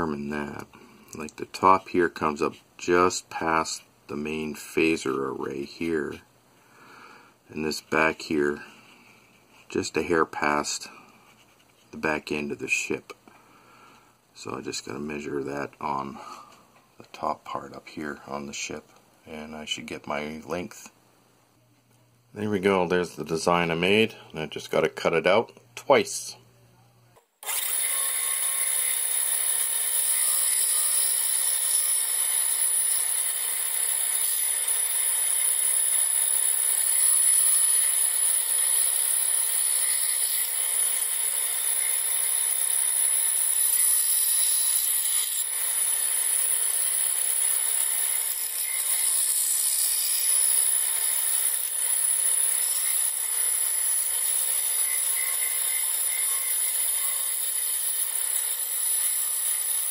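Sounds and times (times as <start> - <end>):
power saw whining: 27.4 - 59.9.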